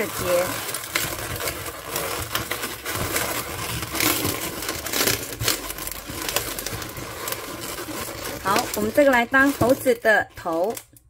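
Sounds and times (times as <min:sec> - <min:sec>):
balloons rubbing and squeaking: 0:00.0 - 0:11.0.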